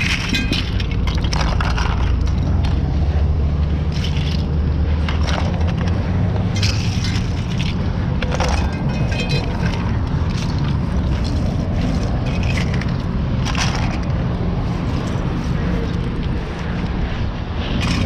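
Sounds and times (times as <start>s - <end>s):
plastic and glass debris clattering: 0.0s - 2.6s, 3.9s - 14.1s.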